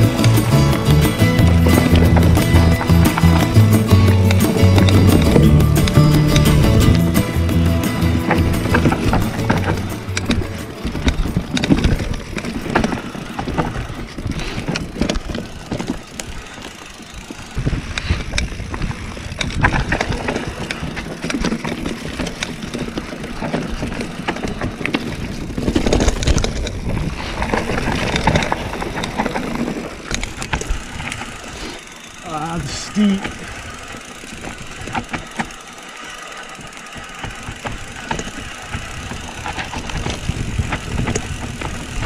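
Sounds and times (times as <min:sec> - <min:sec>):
background music: 0:00.0 - 0:10.8
bike knocks and rattles: 0:00.0 - 0:42.0
bike tyres rolling over dirt: 0:00.0 - 0:42.0.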